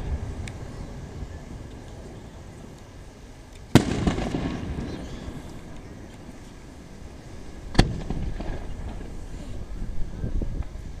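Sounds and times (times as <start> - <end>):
firework crackles: 0.0 - 11.0
firework rumble: 0.0 - 11.0
firework shells bursting: 3.6 - 6.3, 7.7 - 9.3.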